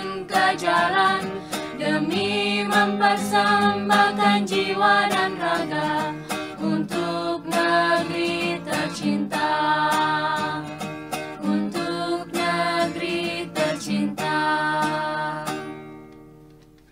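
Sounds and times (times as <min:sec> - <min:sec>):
song with strummed guitar: 0:00.0 - 0:16.9.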